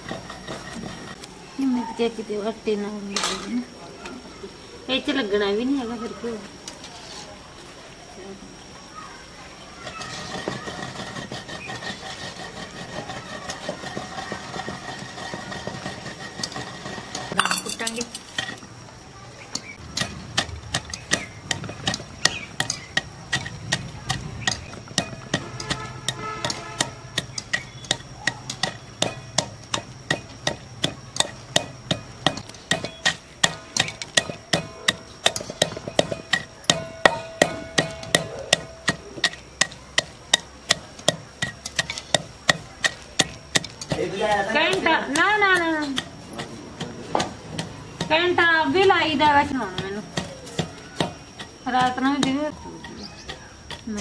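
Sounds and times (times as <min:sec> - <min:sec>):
seeds sizzling in oil: 0:08.9 - 0:38.0
pestle thudding in a mortar: 0:09.8 - 0:18.6, 0:19.7 - 0:54.0
metal spoon stirring: 0:09.8 - 0:18.7, 0:19.5 - 0:54.0.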